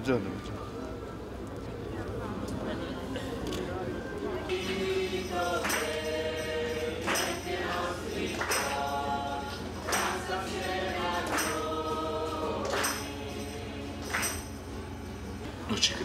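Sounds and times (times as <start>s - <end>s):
congregation singing a hymn: 4.2s - 15.5s.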